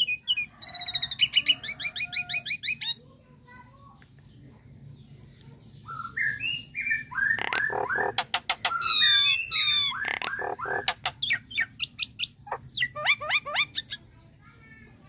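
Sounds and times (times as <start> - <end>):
myna bird calling: 5.8 - 14.1.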